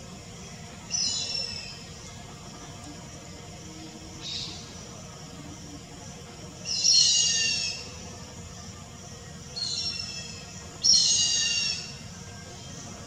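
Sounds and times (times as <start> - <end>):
hornbill calling: 0.9 - 2.1, 6.6 - 8.2, 9.5 - 12.3.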